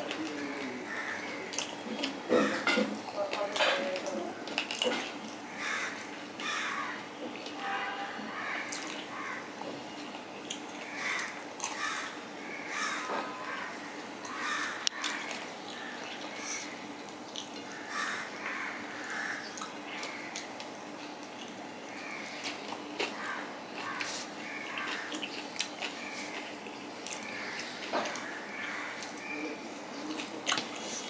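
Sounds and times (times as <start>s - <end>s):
wet eating sounds: 0.0s - 7.6s, 8.3s - 31.0s
short harsh calls: 5.5s - 9.5s.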